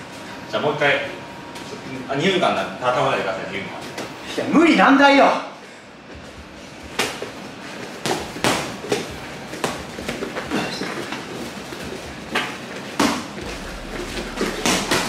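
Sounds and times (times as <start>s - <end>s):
boxing gloves smacking: 8.0s - 10.5s, 12.3s - 13.6s.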